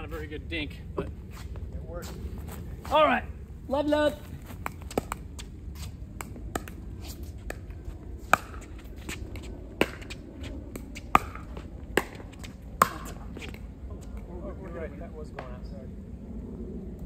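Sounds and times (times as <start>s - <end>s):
paddles hitting plastic ball: 4.6s - 5.5s.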